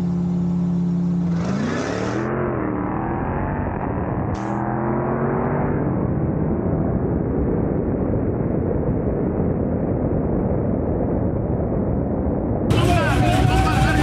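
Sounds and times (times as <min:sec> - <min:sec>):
car accelerating hard: 0:01.0 - 0:06.3, 0:12.7 - 0:14.0.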